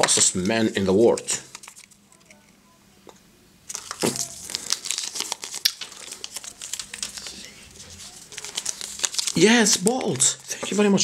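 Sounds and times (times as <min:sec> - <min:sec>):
foil and paper wrappings crinkling: 0:03.7 - 0:11.0.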